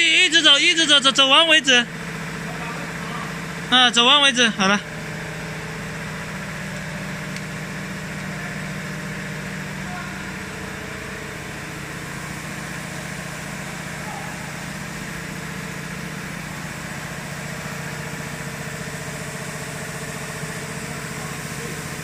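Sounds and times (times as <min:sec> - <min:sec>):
machine hum: 0:00.0 - 0:22.0.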